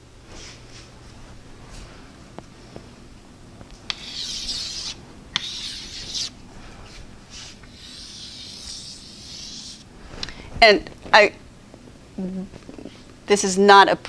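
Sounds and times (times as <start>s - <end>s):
marker scratching on whiteboard: 3.9s - 6.3s, 7.7s - 9.8s.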